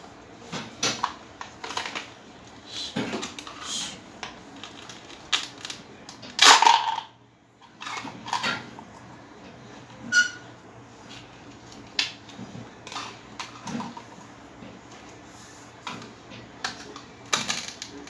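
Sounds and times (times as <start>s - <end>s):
plastic toys clicking and clattering: 0.8s - 2.2s, 4.5s - 8.8s, 16.6s - 18.0s.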